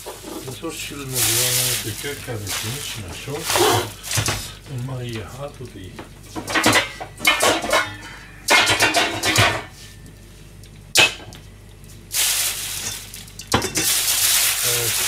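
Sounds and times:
kitchen items clattering: 0.0s - 4.6s, 6.0s - 9.8s, 12.2s - 15.0s
steady hiss: 0.0s - 6.3s, 11.9s - 15.0s.

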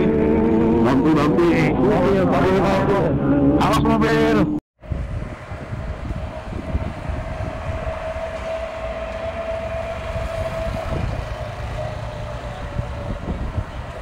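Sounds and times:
wind buffeting microphone: 4.8s - 14.0s
motorcycle engine whining: 5.1s - 14.0s.

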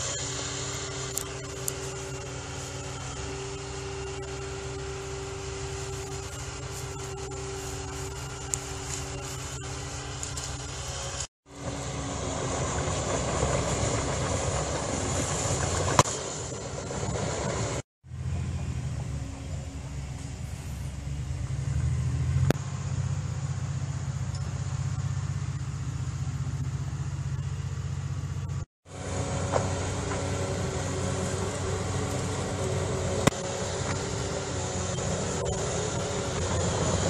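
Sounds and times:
excavator diesel engine humming: 0.0s - 37.0s.

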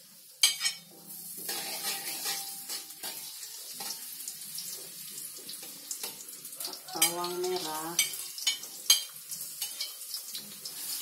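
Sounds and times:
garlic sizzling in hot oil: 0.0s - 11.0s
spatula scraping and tapping: 0.4s - 4.0s, 7.0s - 10.9s
metal spatula clacking on wok: 1.5s - 4.0s.

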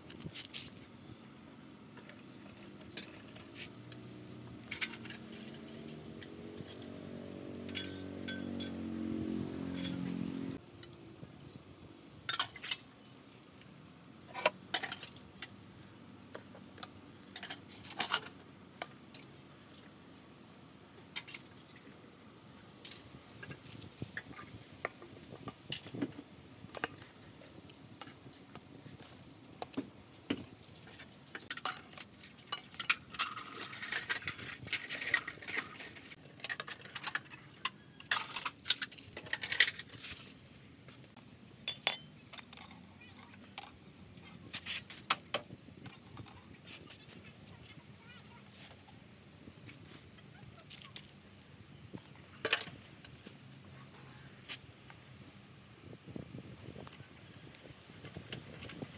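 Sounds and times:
skewers clinking on metal basin: 4.5s - 8.9s, 41.7s - 42.7s.

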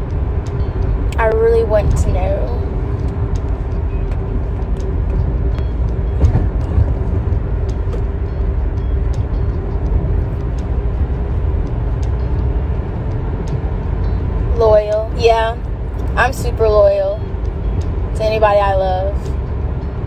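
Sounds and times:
car road and engine rumble: 0.0s - 20.0s.

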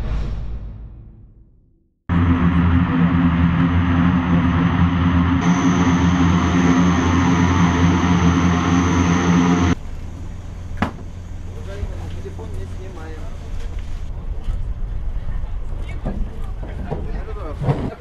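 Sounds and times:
propeller drone: 2.1s - 13.5s
turbine whine: 2.1s - 15.9s.

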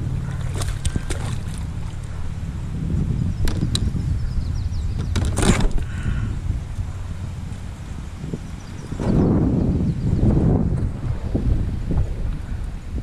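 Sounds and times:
water splashing: 0.0s - 2.8s
wind rumbling on microphone: 0.0s - 13.0s
sharp clicks and knocks: 3.4s - 3.9s, 5.0s - 5.9s.

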